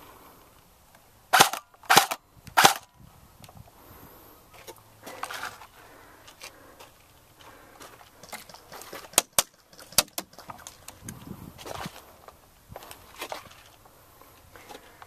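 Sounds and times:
gear rattling and scuffing: 0:04.6 - 0:13.9.

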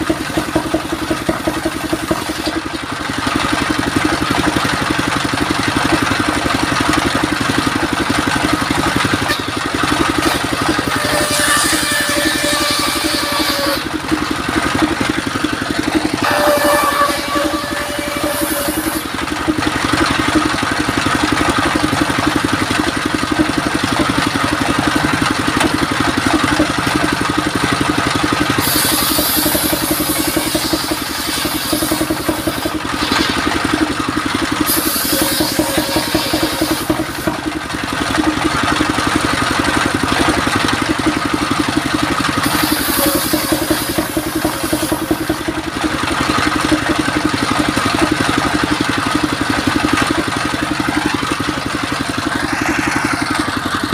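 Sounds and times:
sawmill engine running: 0:00.0 - 0:53.9
circular saw ripping wood: 0:09.2 - 0:20.0, 0:28.5 - 0:37.4, 0:41.8 - 0:45.5.

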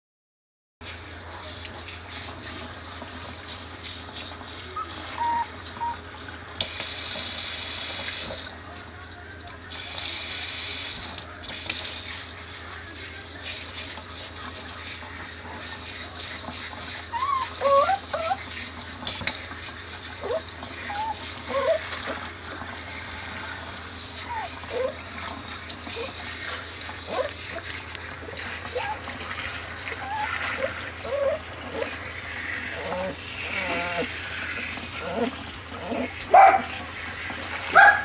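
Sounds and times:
water spraying into a sink: 0:00.8 - 0:38.0
puppy whimpering: 0:04.7 - 0:06.0, 0:17.1 - 0:18.5, 0:20.2 - 0:22.0, 0:24.2 - 0:25.0, 0:27.1 - 0:27.4, 0:28.6 - 0:29.1, 0:29.9 - 0:32.0, 0:32.7 - 0:34.2, 0:35.0 - 0:36.6.

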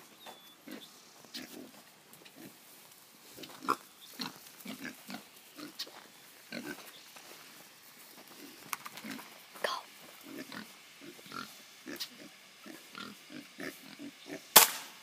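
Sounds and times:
animal grunting calls: 0:08.4 - 0:14.5.

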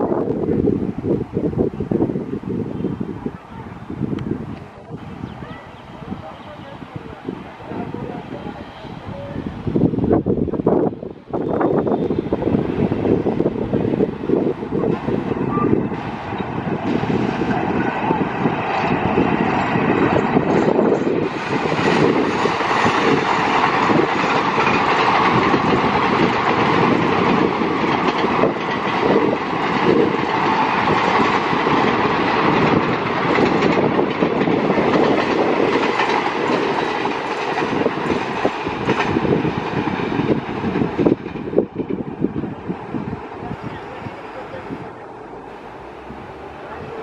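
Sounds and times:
train rumble: 0:00.0 - 0:47.0
wheels clicking over rail joints: 0:14.4 - 0:47.0.

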